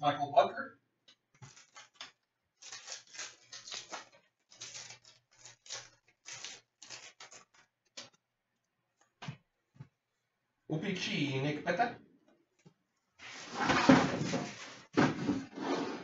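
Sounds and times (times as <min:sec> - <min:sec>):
cards rustling: 0:01.3 - 0:08.2
foil wrapper crinkling: 0:01.4 - 0:08.2.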